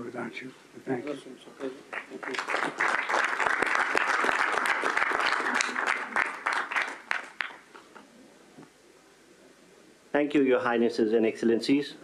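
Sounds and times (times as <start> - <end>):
crowd applause: 2.1 - 7.7.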